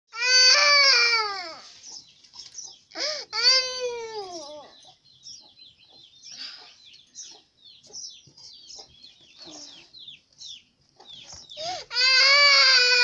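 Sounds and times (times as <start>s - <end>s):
girl crying: 0.2s - 1.6s, 3.0s - 4.7s, 11.6s - 13.0s
small birds chirping: 0.6s - 13.0s.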